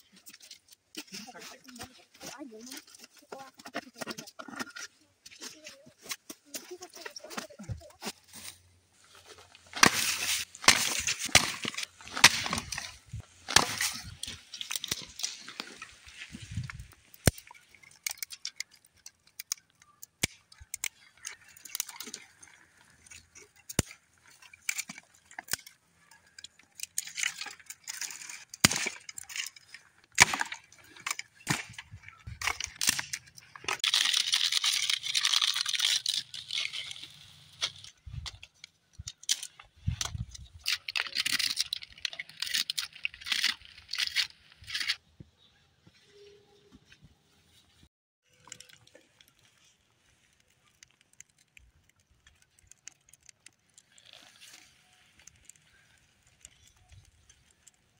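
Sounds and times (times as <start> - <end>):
ash and twigs scraping rustle: 0.0 - 45.0, 48.3 - 57.9
sticks knocking against stones: 9.6 - 45.0.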